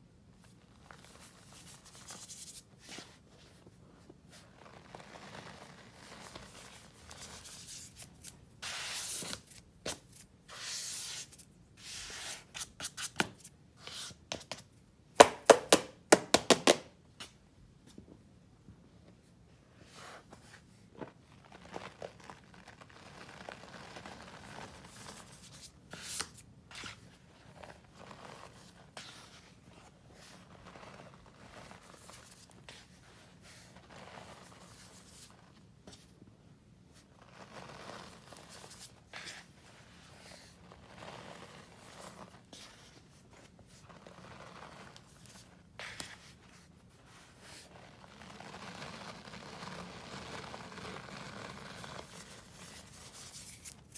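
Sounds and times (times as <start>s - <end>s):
powder falling into tub: 15.2s - 16.9s.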